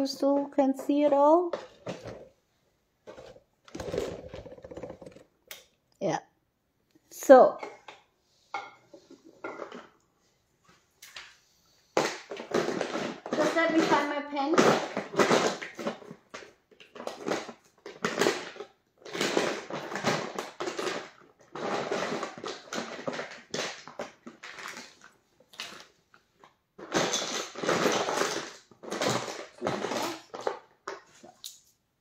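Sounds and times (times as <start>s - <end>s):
rustling and crinkling handling: 0.2s - 5.4s, 12.3s - 31.8s.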